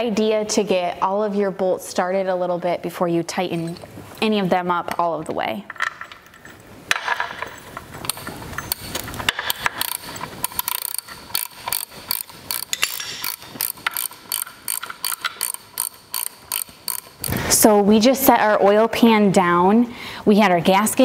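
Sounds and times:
ratchet wrench clicking: 8.1s - 17.4s.

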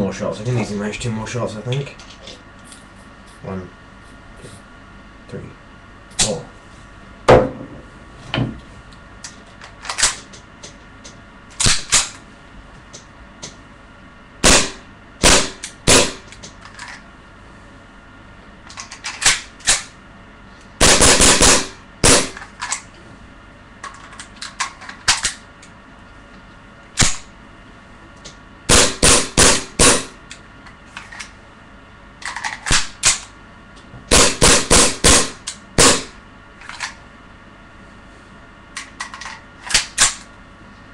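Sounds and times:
airsoft pistol firing: 14.4s - 16.2s, 20.8s - 22.4s, 28.7s - 30.1s, 34.1s - 36.1s.

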